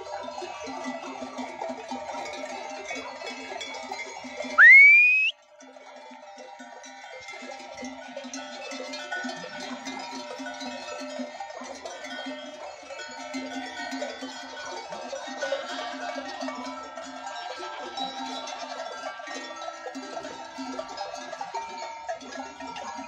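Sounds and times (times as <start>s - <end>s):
goat bells jangling: 0.0s - 23.0s
rising whistle: 4.6s - 5.3s.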